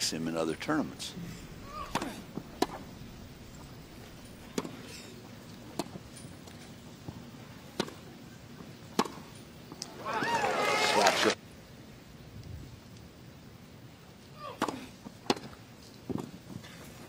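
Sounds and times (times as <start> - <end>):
tennis ball struck by rackets: 1.7 - 3.0, 7.7 - 8.0, 8.9 - 9.2.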